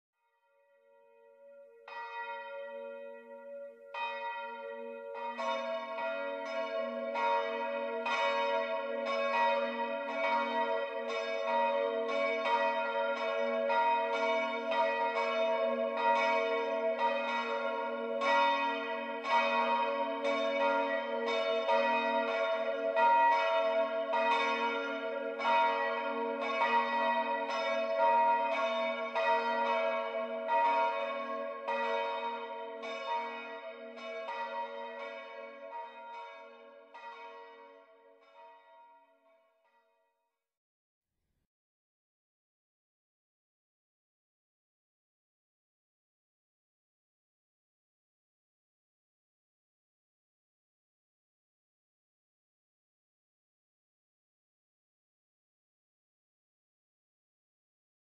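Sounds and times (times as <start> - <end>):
church bells ringing: 0.9 - 39.8.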